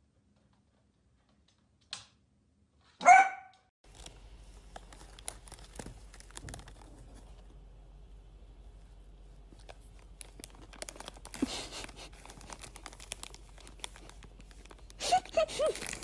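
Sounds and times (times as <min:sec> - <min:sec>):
small dog barking: 0:03.0 - 0:03.7
crinkly packet rustling: 0:03.8 - 0:07.6, 0:08.7 - 0:16.0.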